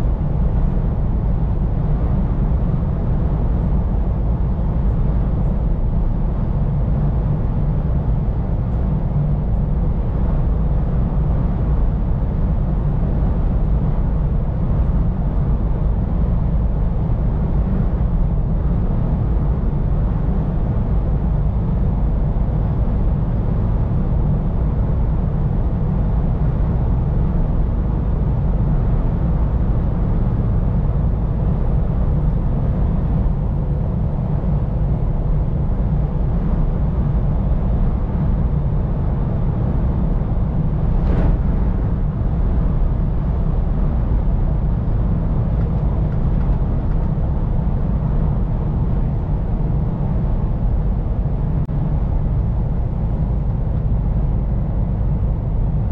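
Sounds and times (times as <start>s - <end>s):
road and tyre noise: 0.0s - 55.9s
truck engine drone: 24.6s - 55.9s.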